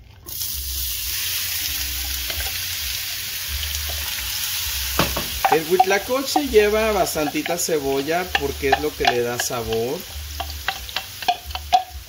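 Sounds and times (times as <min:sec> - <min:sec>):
onion sizzling in oil: 0:00.3 - 0:12.0
wooden spoon stirring: 0:05.0 - 0:12.0.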